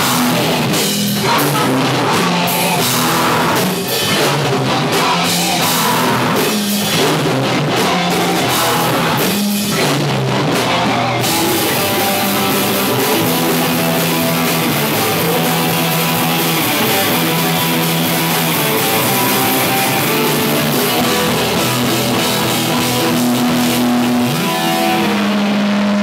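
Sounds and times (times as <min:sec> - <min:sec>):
live rock band playing: 0:00.0 - 0:26.0.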